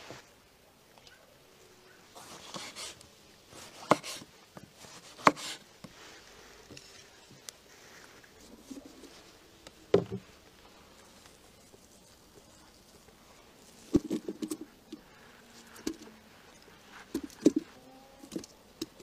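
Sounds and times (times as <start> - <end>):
knife slicing tomatoes: 2.2 - 3.0, 3.6 - 5.6.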